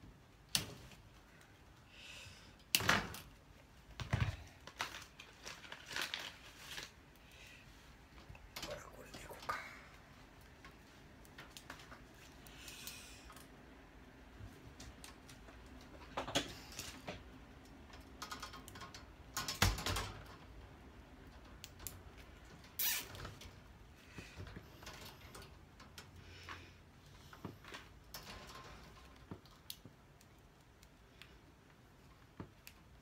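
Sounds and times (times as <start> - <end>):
metal mesh clicking and rattling: 17.6 - 23.7.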